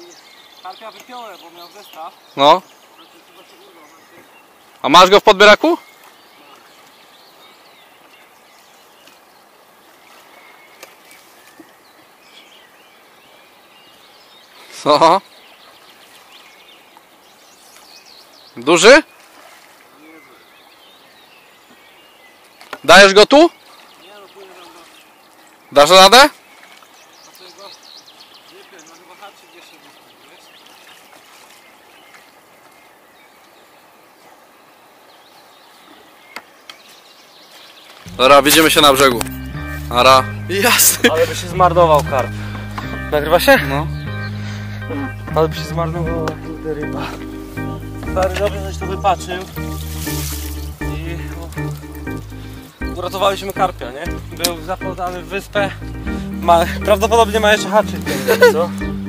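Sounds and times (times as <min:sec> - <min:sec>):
small birds chirping: 0:00.0 - 0:59.0
steady outdoor hiss: 0:00.0 - 0:59.0
steady hiss: 0:49.0 - 0:52.8.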